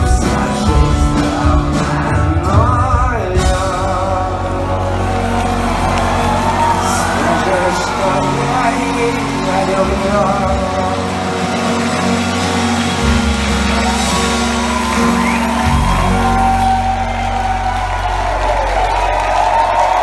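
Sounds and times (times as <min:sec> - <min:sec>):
live rock band playing: 0:00.0 - 0:20.0
crowd shouting and whooping: 0:03.3 - 0:20.0.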